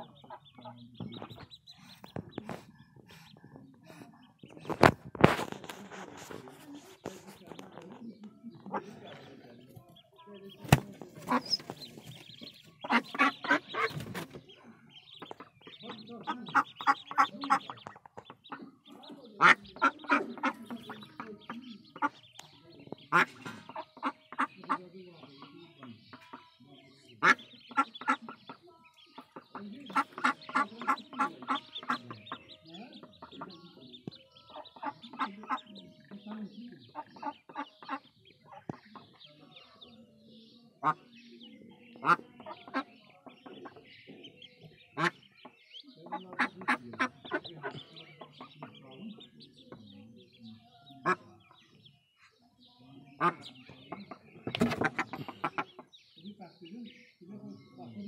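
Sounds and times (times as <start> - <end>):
duck quacking: 0.0 - 2.4, 10.4 - 14.1, 15.0 - 22.3, 23.0 - 28.6, 29.2 - 39.2, 40.8 - 41.1, 41.9 - 49.4, 51.0 - 51.6, 53.1 - 56.0.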